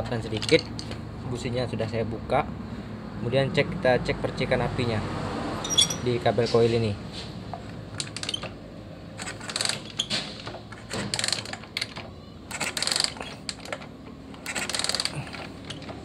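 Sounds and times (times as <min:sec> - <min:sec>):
engine turning over: 0:09.2 - 0:16.0.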